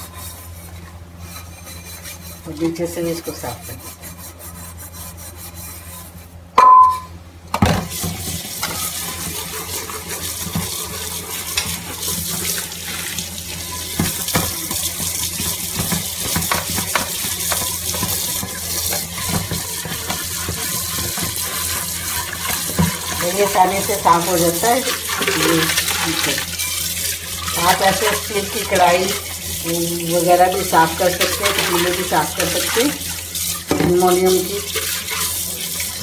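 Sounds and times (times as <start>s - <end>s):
hand scrubbing metal pot: 0.0s - 7.0s, 7.8s - 36.0s
tap water running: 7.5s - 36.0s.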